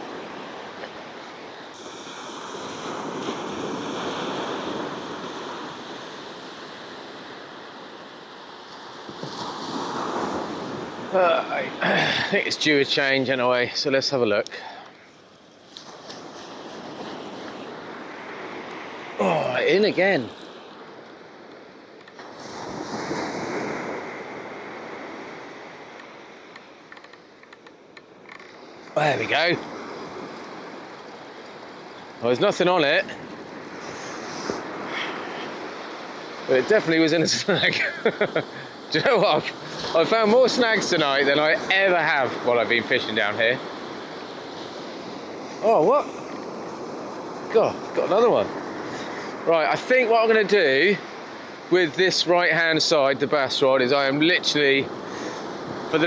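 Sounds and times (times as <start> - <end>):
sea waves washing onto shore: 0.0 - 56.0
faint ticks: 25.9 - 28.6.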